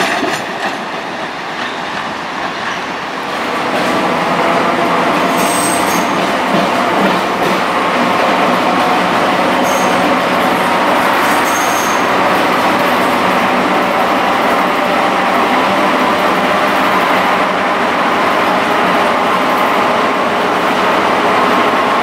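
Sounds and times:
train wheels rumbling on rails: 0.0 - 22.0
high squeak: 9.6 - 10.2, 11.3 - 12.1.

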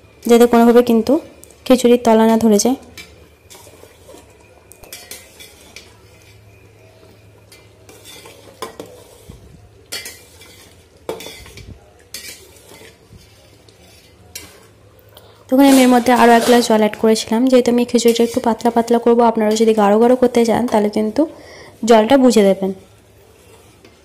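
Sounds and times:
metal spatula scraping a pot: 3.0 - 14.9, 15.5 - 17.0, 18.0 - 18.6, 23.1 - 24.0.

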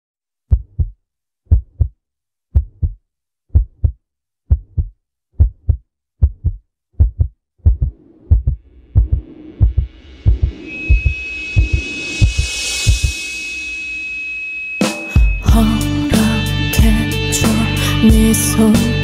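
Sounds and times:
heartbeat thumps: 0.5 - 2.0, 2.6 - 13.1.

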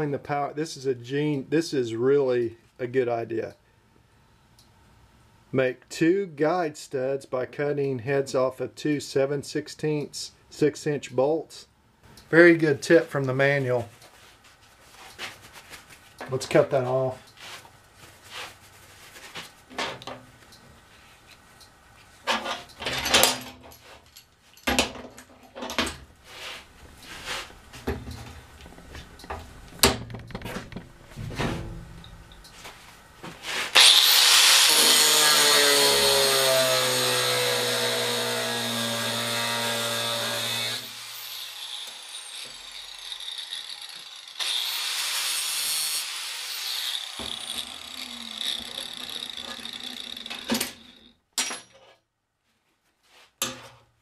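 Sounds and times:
angle grinder cutting steel: 33.7 - 51.1.

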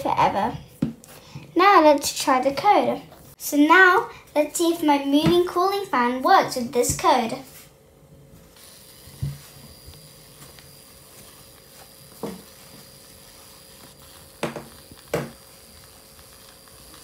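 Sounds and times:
small electric motor whining: 8.5 - 17.0.

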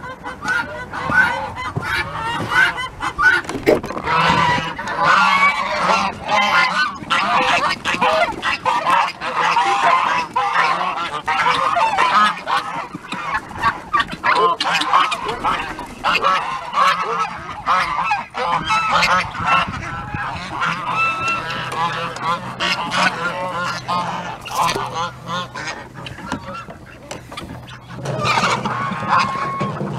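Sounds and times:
geese honking: 0.0 - 29.9.

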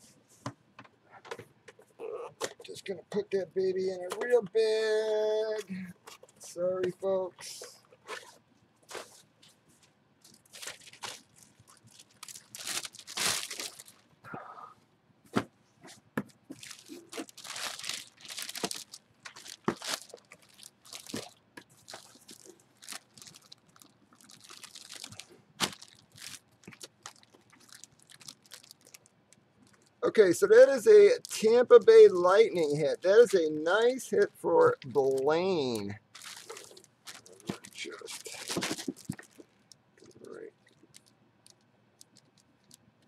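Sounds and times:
plastic bag crinkling: 10.2 - 14.2, 16.5 - 30.0, 34.8 - 43.0.

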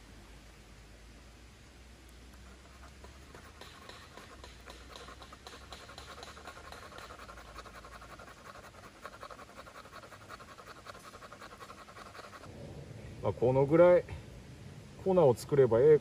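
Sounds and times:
knife scraping wood: 2.4 - 12.5.

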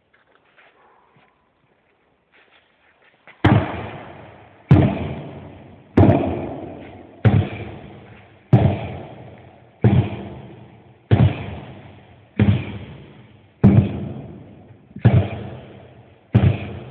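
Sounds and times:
sledgehammer striking tire: 3.4 - 16.9.

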